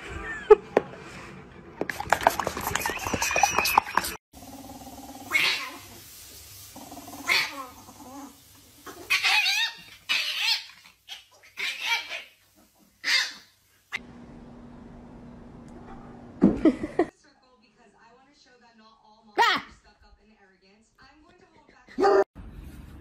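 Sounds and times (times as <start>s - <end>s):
cats growling and yowling: 4.4s - 5.9s, 6.8s - 12.2s
dog play-growling: 6.8s - 10.0s.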